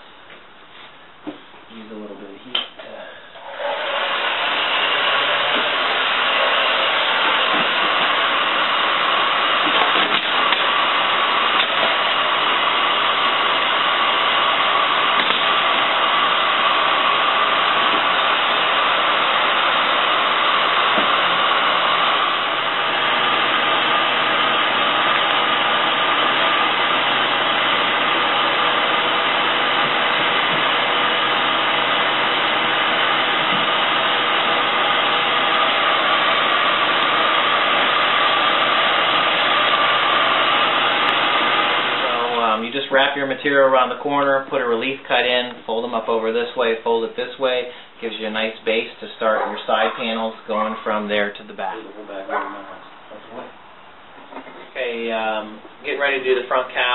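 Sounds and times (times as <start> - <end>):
heat gun blowing hiss: 3.4 - 42.6.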